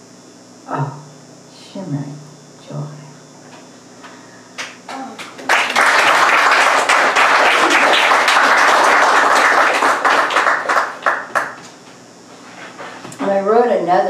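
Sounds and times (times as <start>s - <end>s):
audience clapping: 4.6s - 11.7s.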